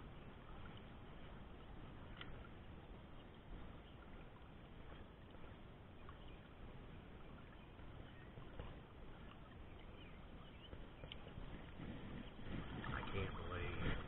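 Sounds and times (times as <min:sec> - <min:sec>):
gently moving river water: 0:00.0 - 0:14.0
faint ticks: 0:02.1 - 0:02.5, 0:10.7 - 0:12.7.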